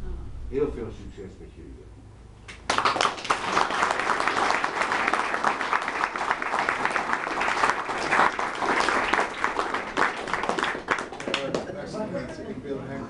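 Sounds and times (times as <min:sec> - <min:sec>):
audience clapping: 0:02.5 - 0:11.8.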